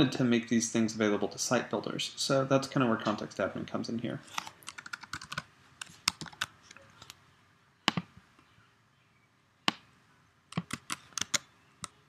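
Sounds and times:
keyboard keys clicking: 4.7s - 5.4s, 6.0s - 7.1s, 10.5s - 12.0s.

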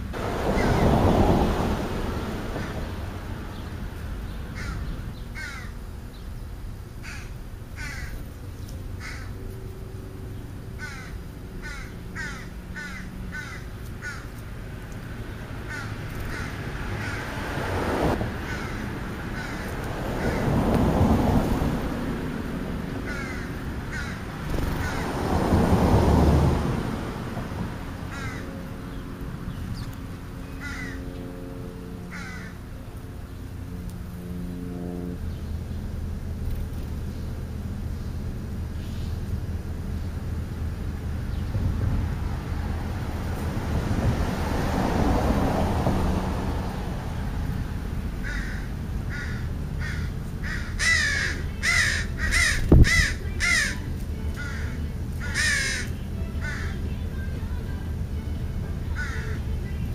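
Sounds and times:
low rumbling noise: 0.0s - 59.9s
crows cawing: 4.5s - 5.8s, 7.0s - 8.2s, 9.0s - 9.4s, 10.8s - 14.4s, 15.6s - 17.5s, 18.4s - 20.6s, 23.0s - 25.2s, 28.1s - 28.6s, 30.6s - 31.1s, 32.1s - 32.6s, 48.2s - 53.8s, 54.4s - 56.8s, 59.0s - 59.4s.

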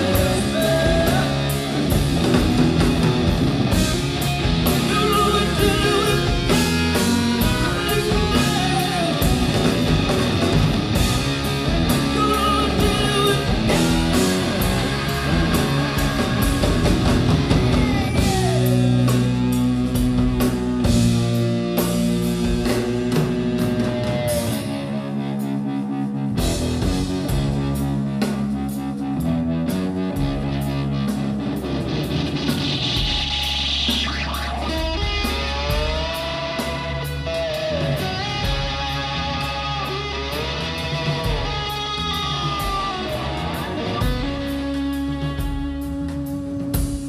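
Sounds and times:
bass: 0.0s - 47.0s
drum kit and cymbals: 0.0s - 47.0s
electric guitar: 0.0s - 47.0s.

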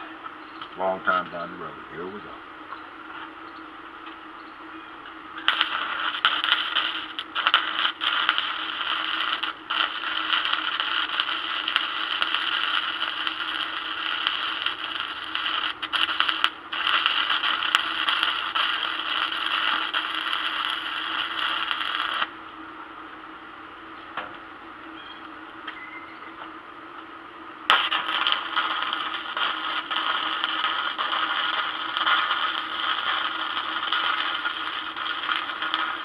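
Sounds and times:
arc welding crackle and sizzle: 0.0s - 22.6s, 27.7s - 36.0s
low steady hum: 0.0s - 36.0s.

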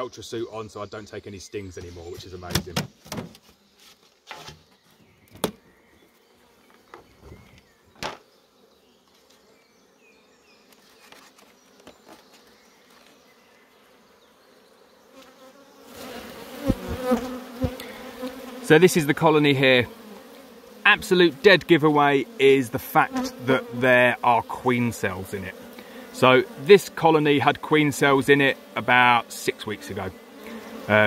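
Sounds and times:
honeybees buzzing: 0.2s - 31.0s
hive lid knocks and clicks: 2.5s - 3.4s, 7.9s - 8.2s.

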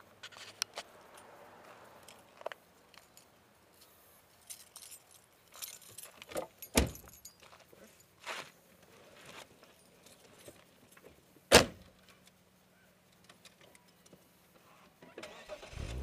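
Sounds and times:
keys jangling: 4.4s - 7.6s.

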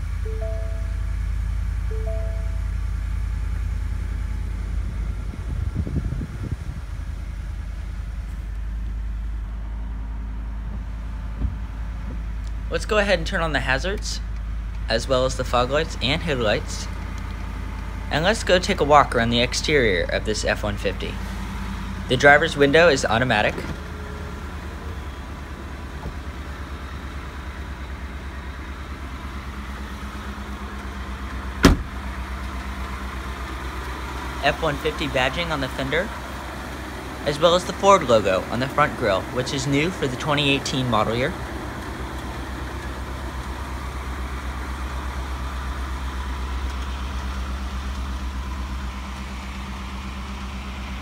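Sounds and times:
truck engine idling: 0.0s - 51.0s
car door slamming: 31.6s - 32.1s.

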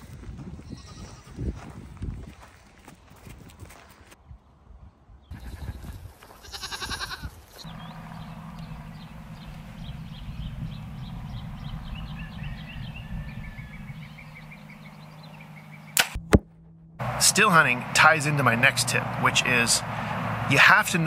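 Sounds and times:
goat bleating: 5.3s - 5.7s, 6.3s - 7.9s
small birds chirping: 7.5s - 16.0s
steady low hum: 7.7s - 20.5s.

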